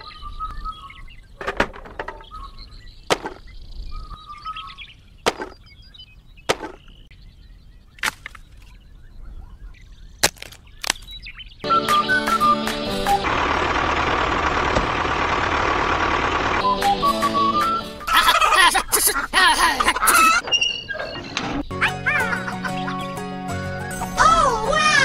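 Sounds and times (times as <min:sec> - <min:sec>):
birds chirping: 0:00.0 - 0:25.0
music: 0:11.6 - 0:13.3, 0:16.6 - 0:18.1, 0:21.7 - 0:25.0.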